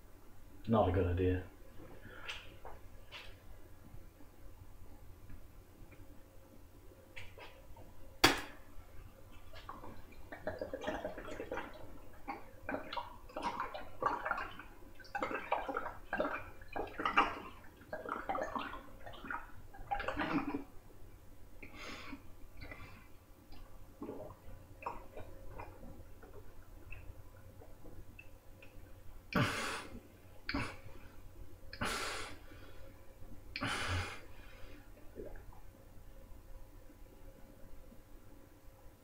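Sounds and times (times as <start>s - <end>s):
person gulping: 9.5s - 20.8s, 21.6s - 28.0s, 29.3s - 30.9s, 35.0s - 35.6s.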